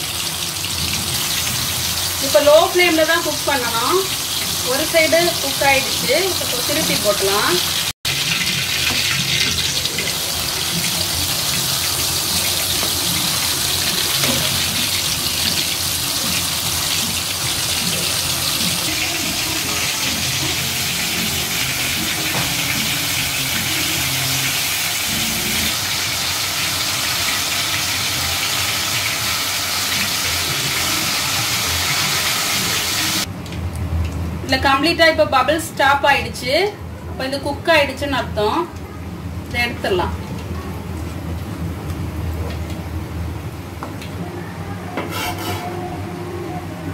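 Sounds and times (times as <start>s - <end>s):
oil sizzling while deep-frying: 0.0s - 34.3s.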